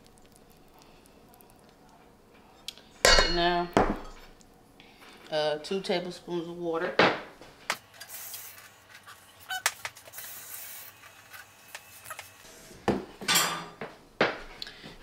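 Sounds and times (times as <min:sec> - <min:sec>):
metal utensils clinking on steel bowl: 0:03.0 - 0:04.2.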